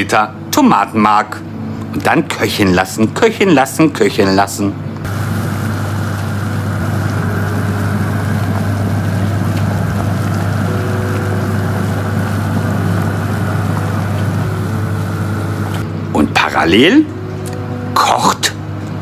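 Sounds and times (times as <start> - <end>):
low hum: 5.0 - 16.1
water boiling in a pot: 5.1 - 15.8.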